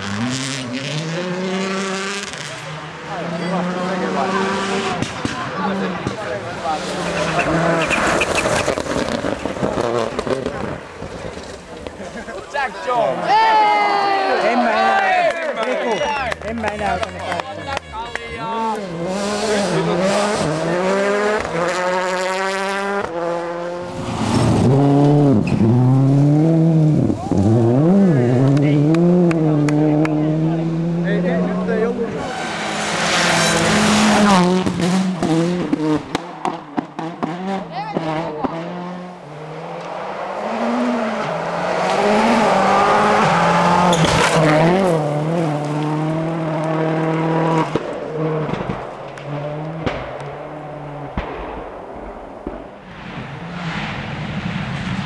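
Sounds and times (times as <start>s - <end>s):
rally car engine accelerating: 0.0s - 12.3s, 16.3s - 51.7s
rally car engine revving: 0.0s - 12.3s, 16.3s - 55.0s
tyres skidding on gravel: 6.0s - 13.2s
sharp crack: 47.6s - 55.0s.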